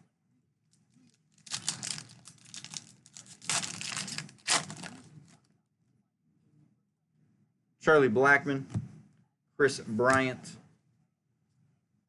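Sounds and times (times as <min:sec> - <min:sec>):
foil wrapper crinkling and tearing: 0:01.0 - 0:05.4.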